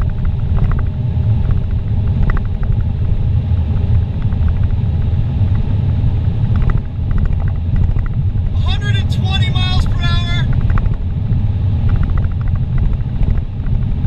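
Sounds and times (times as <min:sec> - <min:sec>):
car engine: 0:00.0 - 0:14.0
road and wind noise in car: 0:00.0 - 0:14.0.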